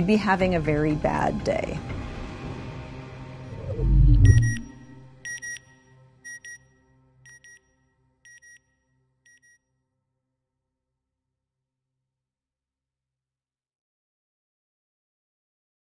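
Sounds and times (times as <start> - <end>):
low electronic boom: 3.5 - 5.1
electronic double beeps: 3.6 - 5.6.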